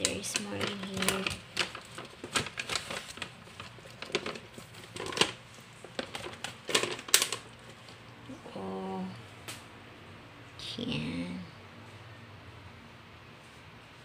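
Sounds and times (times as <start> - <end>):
plastic bag crinkling: 0.0 - 8.0.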